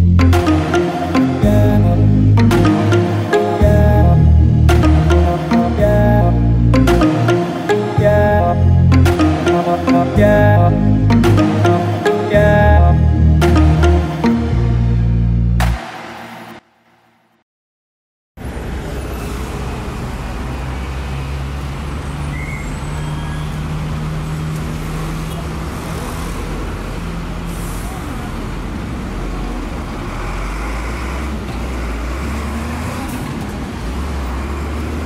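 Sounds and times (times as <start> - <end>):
traffic engine hum: 18.4 - 35.0.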